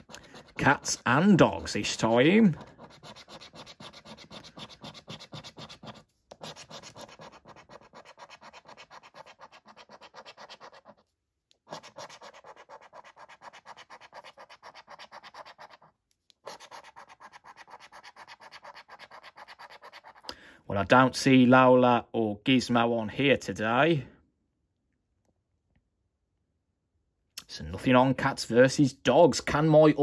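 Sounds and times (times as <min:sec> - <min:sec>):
scratching a scratchcard: 0:00.0 - 0:20.3.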